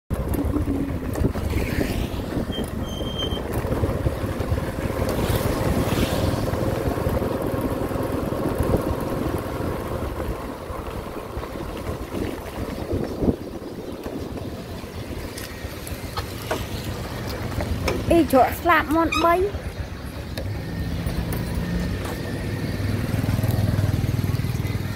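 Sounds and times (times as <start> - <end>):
wind buffeting microphone: 0.1 - 15.8
motorbike engine running: 0.1 - 24.9.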